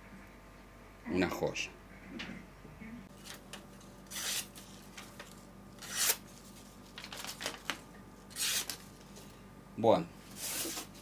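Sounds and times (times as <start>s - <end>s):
paper rustling and crinkling: 4.2s - 9.3s.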